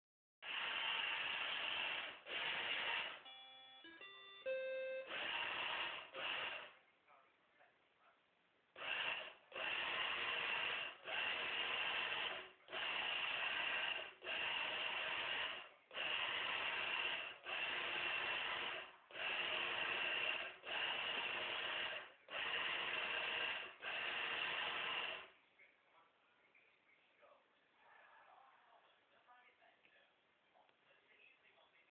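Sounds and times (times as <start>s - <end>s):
robot drive motors whirring: 5.1s - 6.8s, 8.8s - 25.3s.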